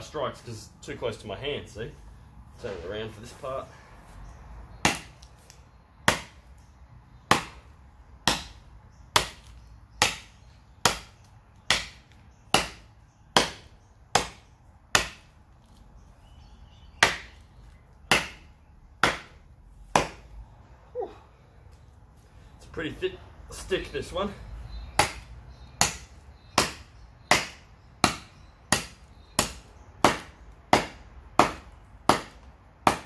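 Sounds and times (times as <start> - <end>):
blade chopping wood: 4.8 - 5.2, 6.0 - 6.4, 7.3 - 15.4, 17.0 - 20.3, 24.9 - 33.0.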